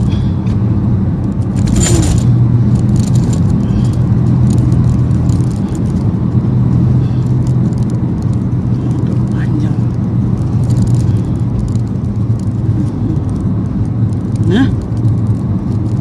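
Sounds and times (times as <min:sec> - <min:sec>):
car cabin drone: 0:00.0 - 0:16.0
metal chain jingling: 0:01.6 - 0:04.8.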